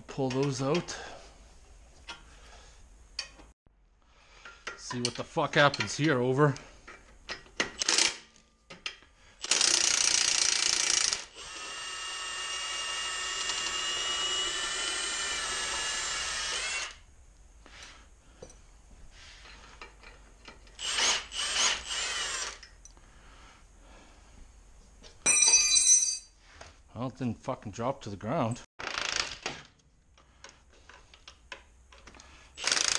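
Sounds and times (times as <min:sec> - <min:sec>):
impact wrench hammering and whining: 0:06.9 - 0:17.0, 0:19.7 - 0:22.8, 0:30.4 - 0:32.9.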